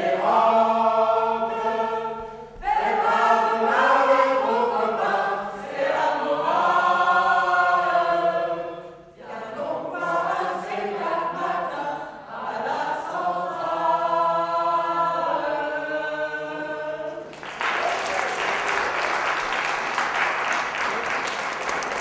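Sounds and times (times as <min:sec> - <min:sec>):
group singing unaccompanied: 0:00.0 - 0:17.4
audience applause: 0:17.3 - 0:22.0.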